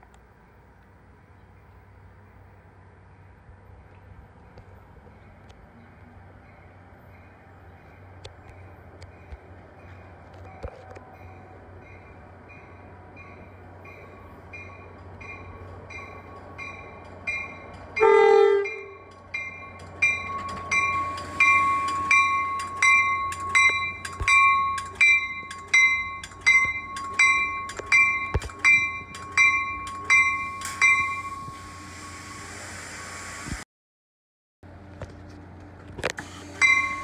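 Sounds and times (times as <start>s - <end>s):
bell ringing: 12.6s - 31.8s, 36.6s - 37.0s
train horn blast: 18.0s - 19.0s.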